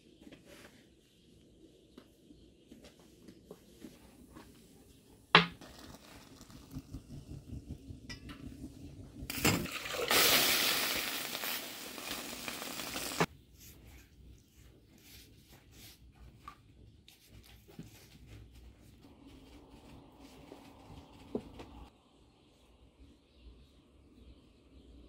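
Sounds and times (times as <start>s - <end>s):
water pouring into teapot: 5.6s - 13.3s.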